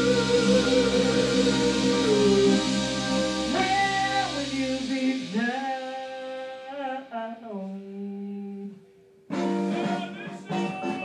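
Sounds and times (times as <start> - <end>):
band playing: 0.0 - 6.9, 9.3 - 11.0.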